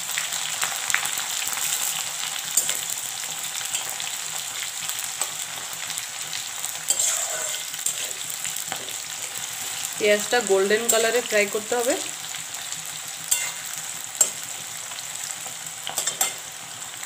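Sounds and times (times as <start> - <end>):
onions sizzling in hot oil: 0.0 - 17.0
metal spatula scraping pan: 6.9 - 9.9, 13.3 - 14.5.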